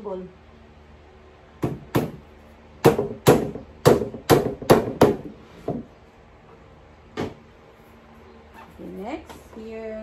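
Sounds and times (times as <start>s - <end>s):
hammer knocking nails into board: 1.6s - 2.2s, 2.8s - 5.8s.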